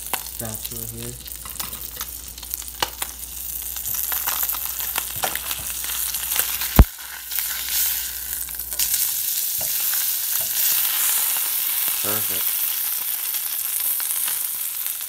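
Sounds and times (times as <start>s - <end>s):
fish sizzling in a pan: 0.0s - 15.0s.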